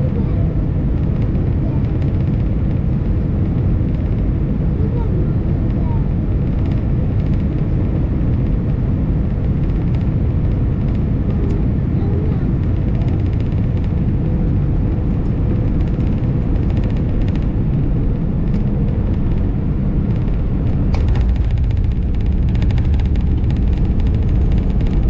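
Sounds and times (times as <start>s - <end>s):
airflow over wing: 0.0s - 25.0s
jet engines rumbling: 0.0s - 25.0s.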